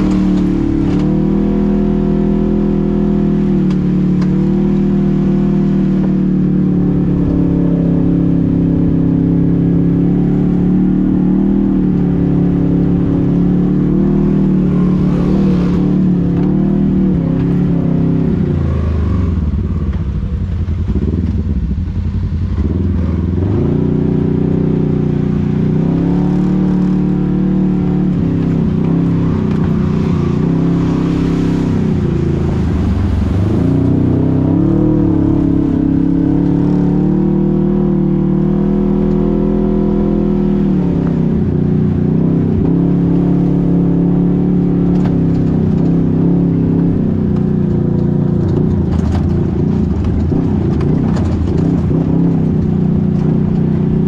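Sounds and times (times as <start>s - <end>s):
engine pitch rising and falling: 28.1s - 37.5s.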